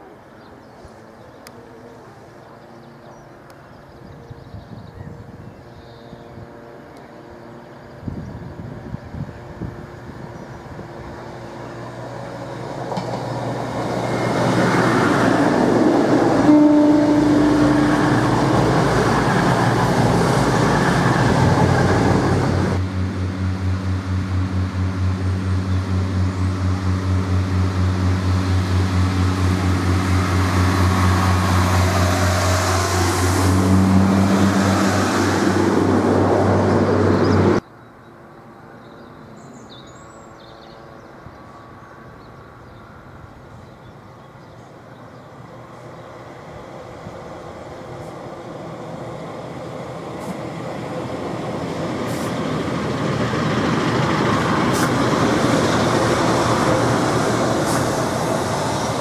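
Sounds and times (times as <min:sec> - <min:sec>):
diesel train engine droning: 0:00.0 - 0:39.6, 0:40.2 - 0:59.0
distant train rumble: 0:00.0 - 0:59.0
train passing at speed: 0:00.0 - 0:59.0
train horn tone: 0:16.2 - 0:19.1.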